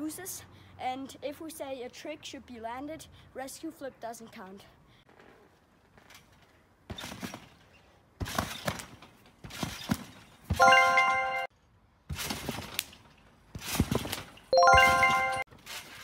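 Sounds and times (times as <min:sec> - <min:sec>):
trampoline frame rattling: 0:05.9 - 0:10.6, 0:12.1 - 0:16.0
thumps on trampoline mat: 0:08.2 - 0:10.6, 0:13.5 - 0:14.4.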